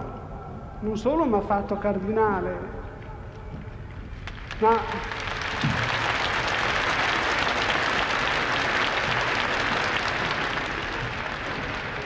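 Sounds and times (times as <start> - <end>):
large crowd applauding: 4.2 - 12.0.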